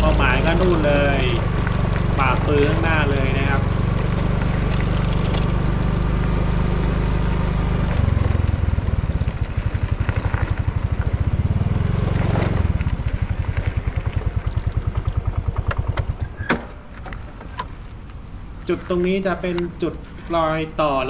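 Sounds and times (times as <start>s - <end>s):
small motorcycle engine running: 0.0s - 16.5s.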